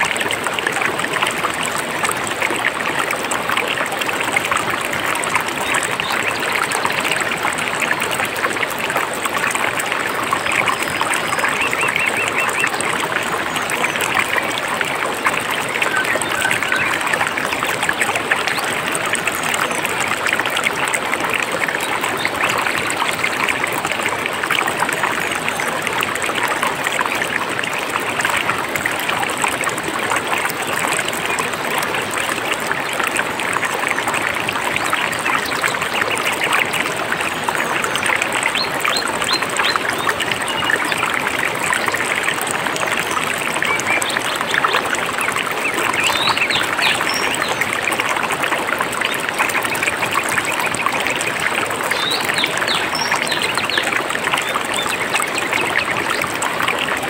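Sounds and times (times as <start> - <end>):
stream running over rocks: 0.0 - 57.0.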